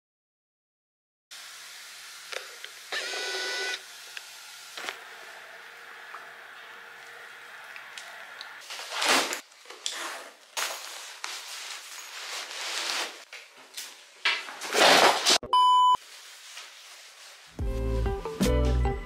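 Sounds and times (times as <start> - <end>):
fabric rustling: 10.4 - 13.3, 16.0 - 17.6
short electronic beep: 15.4 - 16.0.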